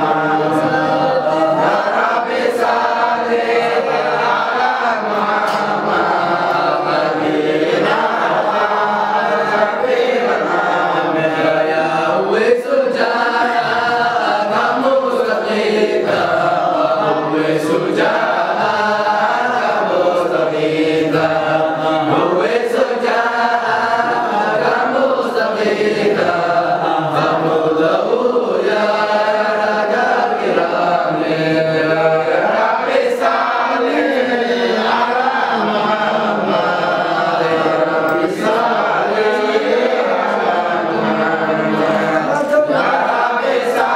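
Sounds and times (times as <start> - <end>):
man leading chant on microphone: 0.0 - 43.9
men chanting together: 0.0 - 43.9.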